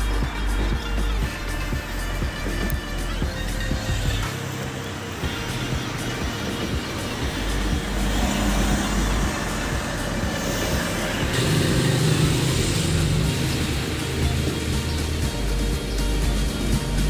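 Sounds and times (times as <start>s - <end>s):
low engine hum: 0.0s - 17.0s
vehicles passing with road noise: 0.0s - 17.0s.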